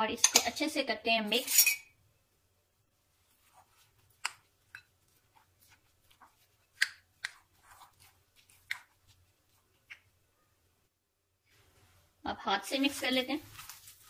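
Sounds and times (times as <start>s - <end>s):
spoon stirring mince squelches: 3.2s - 10.2s.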